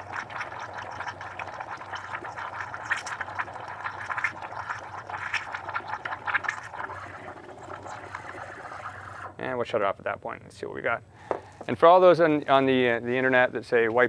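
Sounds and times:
steam wand frothing milk: 0:00.0 - 0:09.3.

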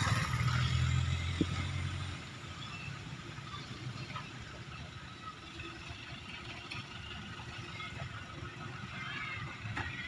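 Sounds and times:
distant diesel engines rumbling: 0:00.0 - 0:10.0.

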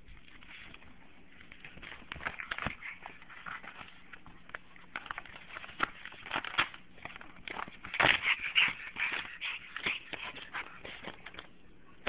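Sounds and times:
puppy chewing paper: 0:00.0 - 0:12.0
paper crinkling and rustling: 0:00.1 - 0:11.6.

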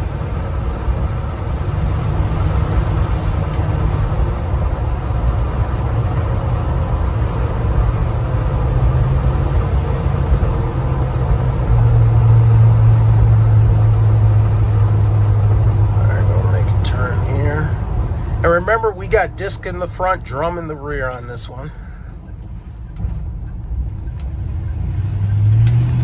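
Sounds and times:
engine hum inside cab: 0:00.0 - 0:26.0.

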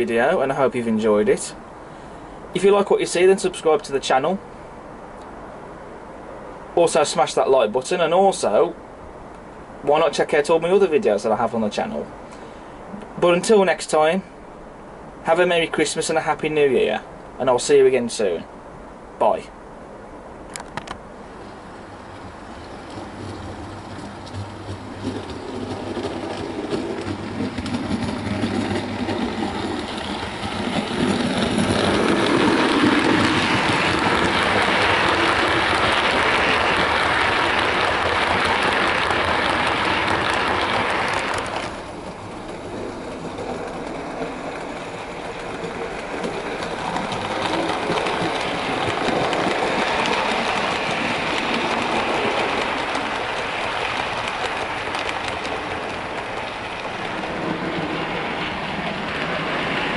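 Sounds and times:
model train wheels clattering on rails: 0:22.0 - 0:59.9.

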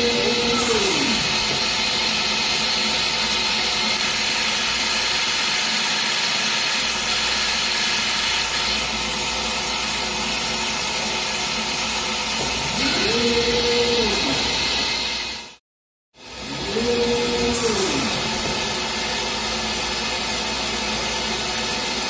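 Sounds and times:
humming tone rising in pitch: 0:00.0 - 0:01.6, 0:16.4 - 0:18.6
laser etching machine hissing: 0:00.0 - 0:15.5, 0:16.5 - 0:22.0.

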